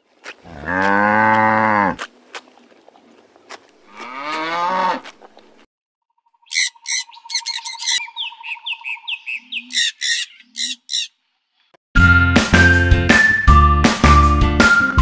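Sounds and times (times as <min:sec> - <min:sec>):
macaws squawking: 0:06.4 - 0:11.2
music: 0:12.0 - 0:15.0.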